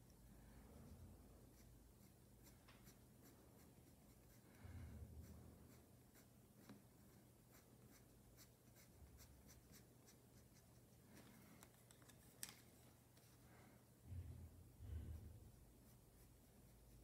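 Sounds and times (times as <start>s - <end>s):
colored pencil scratching on paper: 0.8s - 11.6s, 15.0s - 17.0s.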